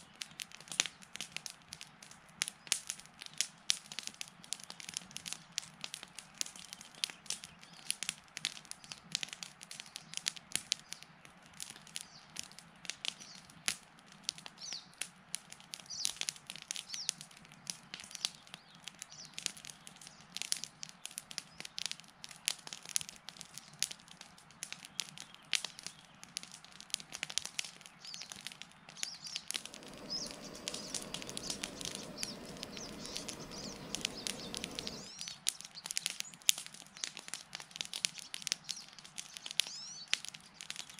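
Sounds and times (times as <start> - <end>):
campfire crackling and popping: 0.0 - 40.9
birds chirping: 29.0 - 35.4
steady rushing noise: 29.6 - 35.2.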